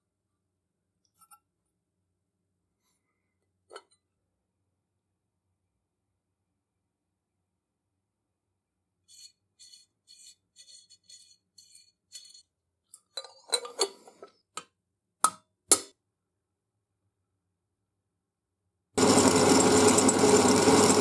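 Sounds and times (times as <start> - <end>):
faint metal scraping: 9.0 - 12.5.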